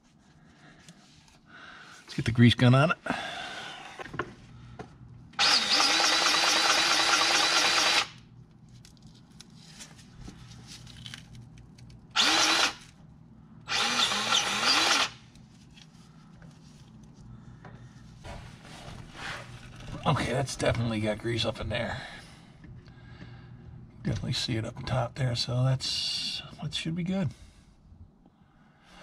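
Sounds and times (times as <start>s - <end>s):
grease gun motor running: 5.4s - 8.2s, 12.2s - 12.9s, 13.7s - 15.2s.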